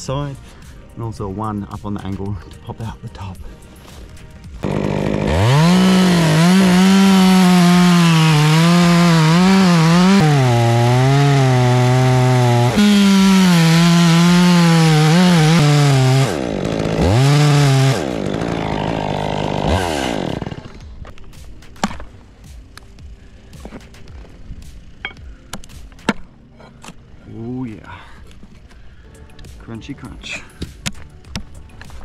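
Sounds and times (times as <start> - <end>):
chainsaw cutting wood: 4.4 - 22.1.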